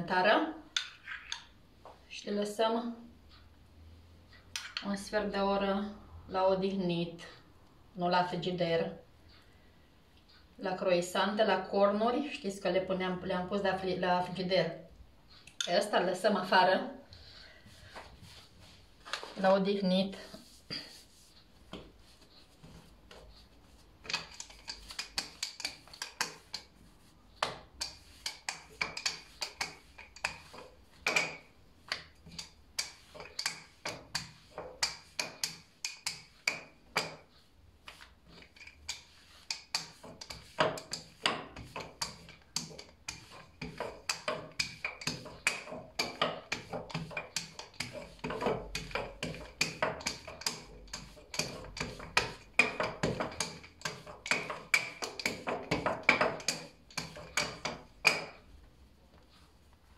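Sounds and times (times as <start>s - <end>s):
rolling pin knocking on worktop: 39.8s - 58.4s.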